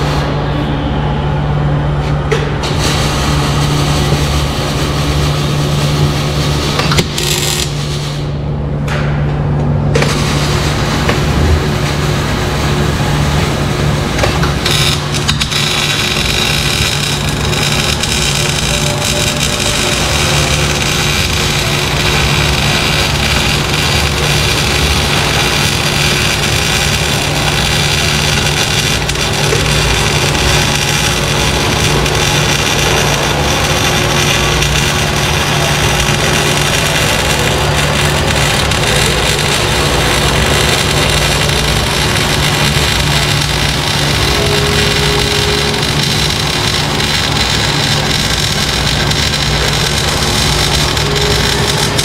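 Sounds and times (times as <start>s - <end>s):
machine humming: 0.0s - 52.0s.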